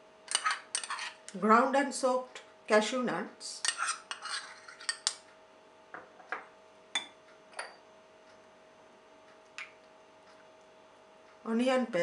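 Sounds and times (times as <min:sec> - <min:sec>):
metal spoon clinking on glass: 0:07.0 - 0:07.8.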